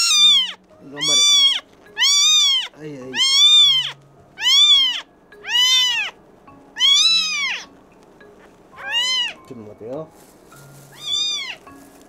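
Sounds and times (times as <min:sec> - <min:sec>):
kitten meowing: 0:00.0 - 0:06.2, 0:06.8 - 0:07.7, 0:08.8 - 0:09.4, 0:10.9 - 0:11.7.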